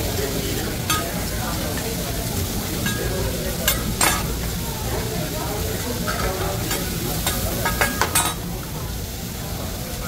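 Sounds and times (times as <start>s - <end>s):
food sizzling on a griddle: 0.0s - 10.0s
metal spatulas clinking: 0.9s - 1.9s, 2.8s - 4.6s, 6.0s - 8.5s.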